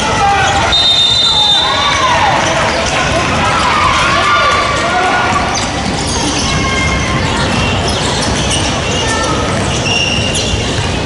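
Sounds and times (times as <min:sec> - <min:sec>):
sneaker squeaks on hardwood: 0:05.4 - 0:11.0.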